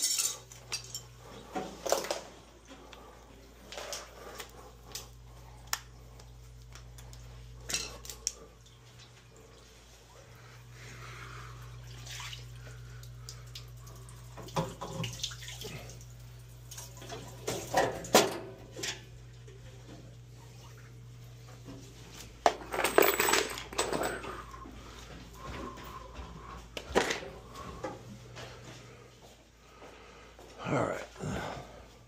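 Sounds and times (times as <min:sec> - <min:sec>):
clinks and knocks: 0:22.5 - 0:24.5.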